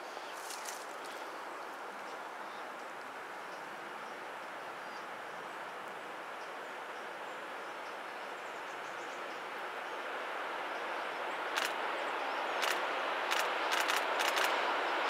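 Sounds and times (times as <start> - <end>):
sharp click: 11.6 - 11.8, 12.6 - 14.6.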